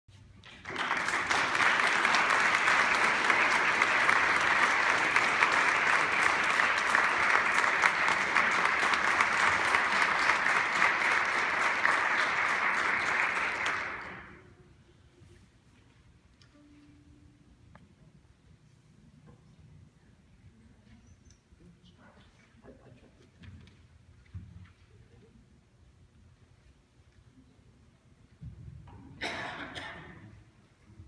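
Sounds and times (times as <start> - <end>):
audience applauding: 0.4 - 14.4.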